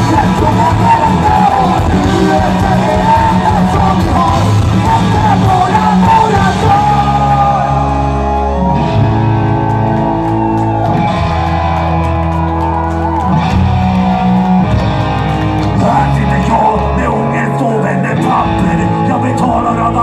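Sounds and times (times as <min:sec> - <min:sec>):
person singing: 0:00.0 - 0:08.6, 0:15.7 - 0:20.0
distorted electric guitars: 0:00.0 - 0:20.0
drums: 0:00.0 - 0:20.0
electric bass: 0:00.0 - 0:20.0.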